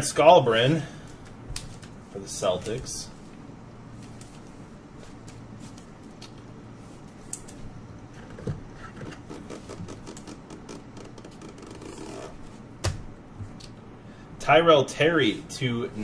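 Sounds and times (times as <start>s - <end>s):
faint steady hum: 0.0s - 16.0s.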